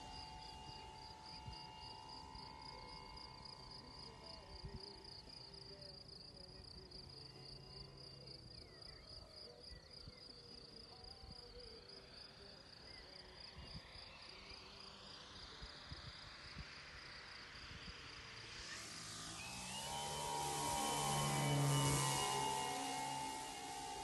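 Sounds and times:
model airplane motor and propeller: 0.0 - 8.7, 13.8 - 24.0
insects chirping: 0.0 - 24.0.

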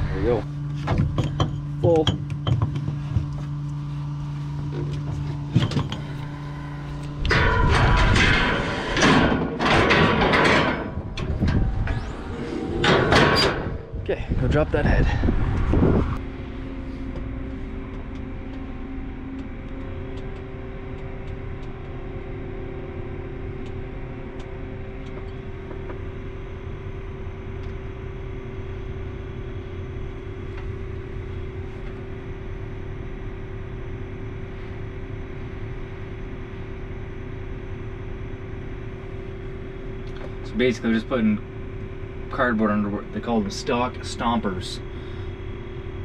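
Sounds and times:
diesel engine humming from cab: 0.0 - 7.4, 13.6 - 46.0
higher engine tone: 10.7 - 34.4.

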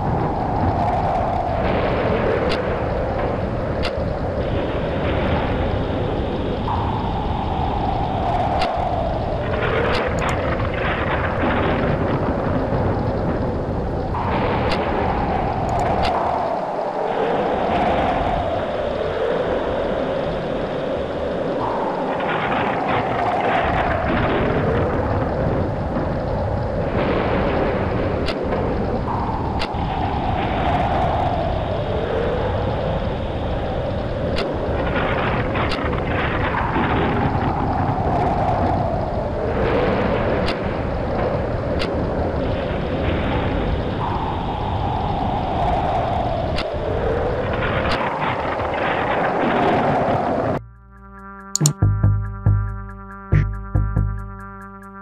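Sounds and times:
whistling wind gust: 0.0 - 50.6
steady wind noise: 0.0 - 55.0
sharp ticks: 9.9 - 10.4, 15.6 - 16.2, 50.9 - 55.0
deep rumble: 50.5 - 55.0.

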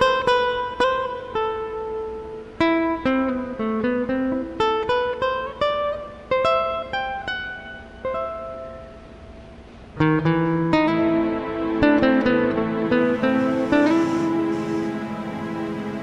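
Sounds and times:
guitar picking slow melody: 0.0 - 16.0.

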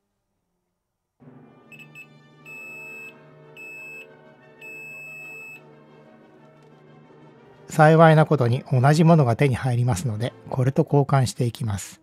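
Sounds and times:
multimeter continuity beeps: 1.7 - 5.6.

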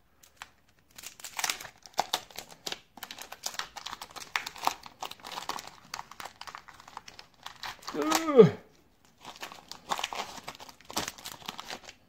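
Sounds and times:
wrapper crinkling and tearing: 0.2 - 12.0.

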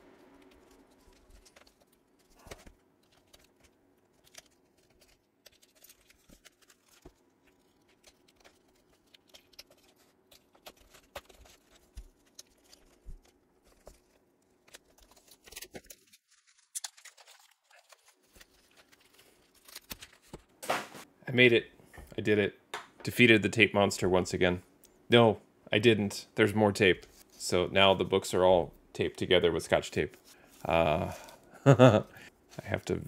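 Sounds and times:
packing tape scratching and crinkling: 0.2 - 21.1.

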